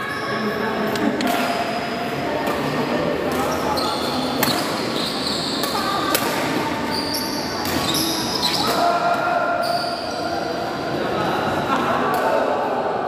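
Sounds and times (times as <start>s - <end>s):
sneakers squeaking on court floor: 3.3s - 8.9s, 9.6s - 10.7s
racket striking shuttlecock: 4.4s - 4.9s, 5.6s - 6.6s.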